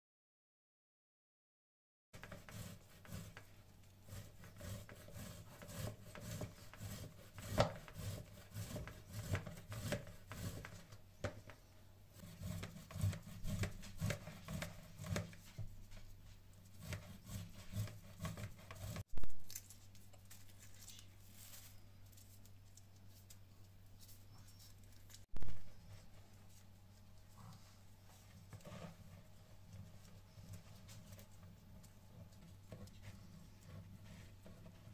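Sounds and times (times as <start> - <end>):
grater rasping scrapes: 2.2 - 10.9, 12.2 - 16.0, 16.6 - 19.0.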